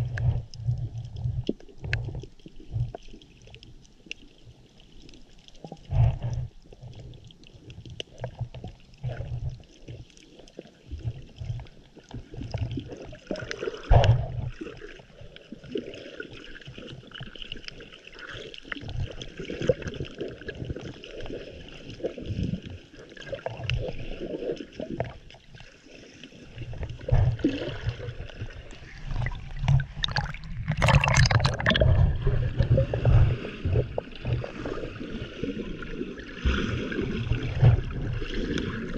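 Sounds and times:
muffled underwater water sloshing: 0.0s - 38.9s
water splashing: 4.3s - 38.9s
low underwater thumps: 26.9s - 34.6s.

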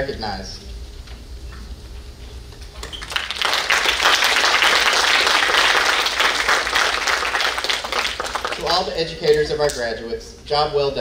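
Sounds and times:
audience applause: 2.9s - 9.0s.

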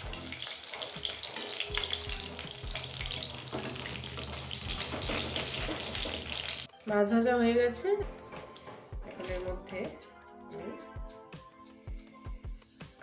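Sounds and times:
fish frying in oil: 0.0s - 6.7s
spatula scraping a pan: 2.8s - 6.7s
spatula knocking on pan: 3.5s - 6.6s.

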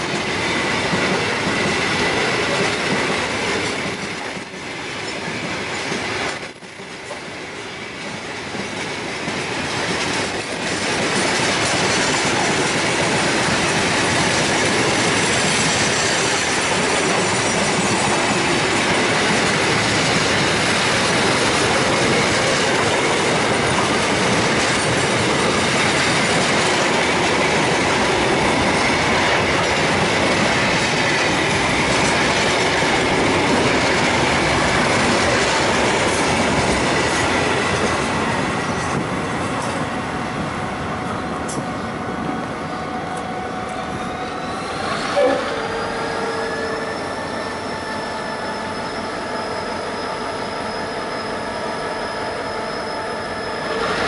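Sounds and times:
train wheels on rail: 0.0s - 54.0s
high squealing tones: 43.7s - 54.0s.

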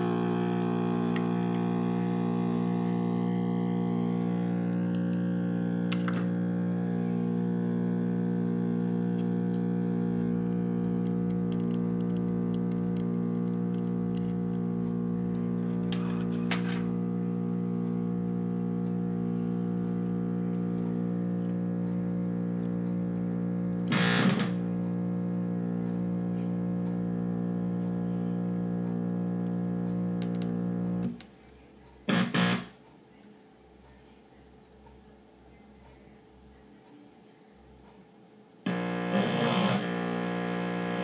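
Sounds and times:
buzzy synthesizer tone: 0.0s - 13.7s, 23.4s - 27.8s, 32.1s - 32.8s, 38.7s - 41.0s.

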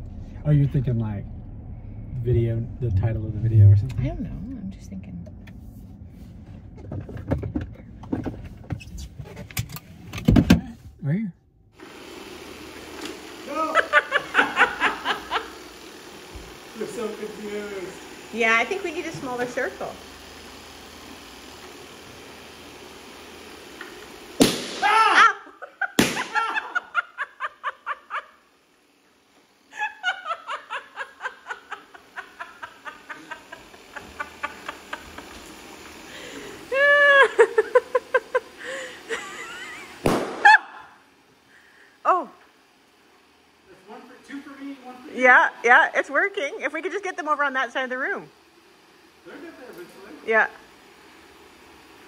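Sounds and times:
low rumble: 0.0s - 8.6s
people laughing: 13.5s - 15.6s, 24.8s - 28.4s, 29.7s - 41.0s
balloon popping: 24.4s - 25.0s, 26.0s - 26.5s, 40.0s - 40.5s
person crying out: 24.7s - 26.9s, 36.7s - 39.0s.

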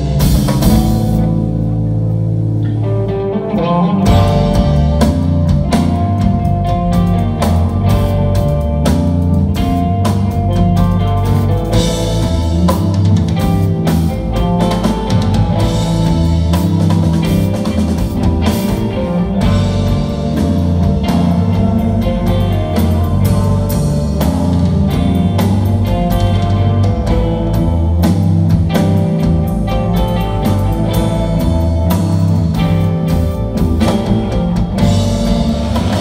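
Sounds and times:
live rock band playing: 0.0s - 36.0s
low bass notes: 0.0s - 36.0s.

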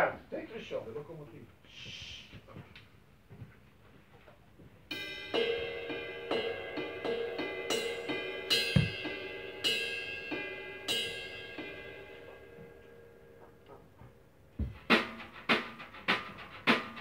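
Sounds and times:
cymbals ringing: 4.9s - 13.8s
bass drum kick: 8.7s - 9.2s, 14.6s - 15.1s.

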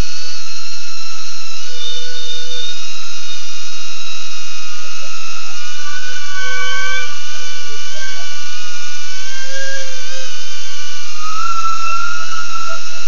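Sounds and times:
quadcopter motors whining: 5.6s - 13.0s.

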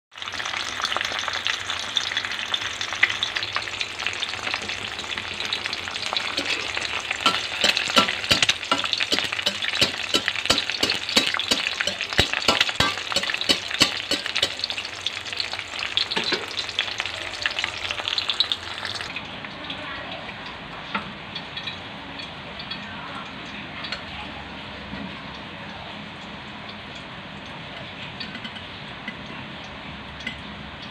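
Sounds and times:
egg sizzling in hot oil: 0.1s - 19.2s.

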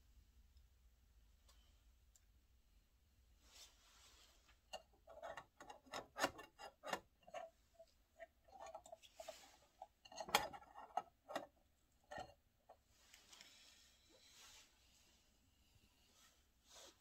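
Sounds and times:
metal lid clinking on pot: 10.1s - 11.5s.

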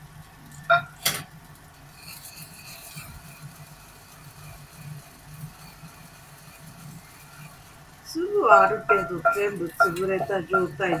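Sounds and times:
pestle grinding seeds in mortar: 1.9s - 7.8s.

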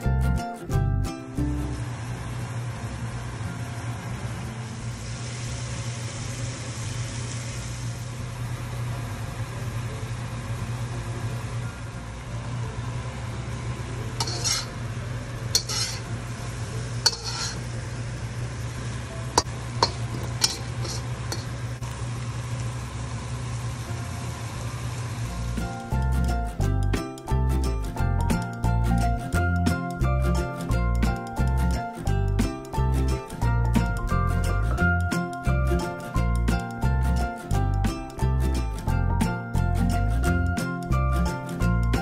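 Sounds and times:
food sizzling in a pan: 1.5s - 26.6s
utensil scraping a pan: 14.2s - 14.8s, 15.5s - 16.2s, 17.0s - 17.8s, 19.4s - 21.6s.

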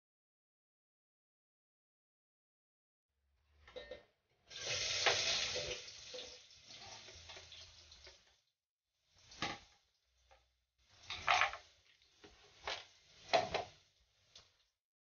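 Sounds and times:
onion sizzling in hot oil: 4.5s - 8.4s, 9.1s - 9.8s, 10.8s - 14.5s.

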